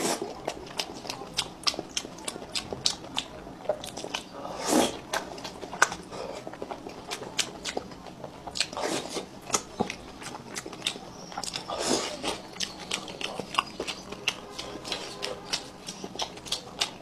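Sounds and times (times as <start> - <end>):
wet chewing: 0.0 - 17.0
lip smacks and mouth clicks: 9.5 - 17.0.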